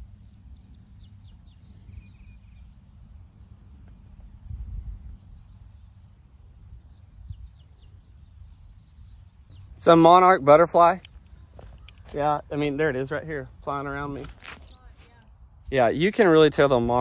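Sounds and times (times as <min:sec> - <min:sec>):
faint high chirps: 0:00.0 - 0:15.9
high insect drone: 0:00.0 - 0:17.0
wind rumbling on microphone: 0:00.0 - 0:17.0.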